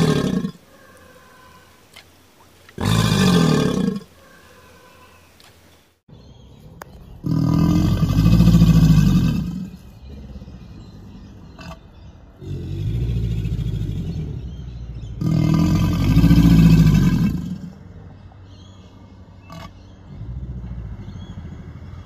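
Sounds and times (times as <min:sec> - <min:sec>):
alligator bellowing: 0:00.0 - 0:01.8, 0:02.7 - 0:05.2, 0:07.2 - 0:17.9, 0:19.4 - 0:22.0.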